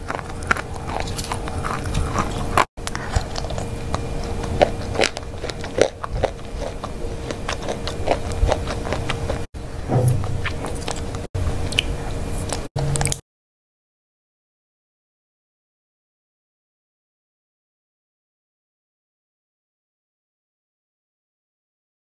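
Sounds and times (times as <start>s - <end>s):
chewing and crunching chocolate: 0.0s - 9.5s, 10.3s - 13.2s
faint steady hum: 0.0s - 13.2s.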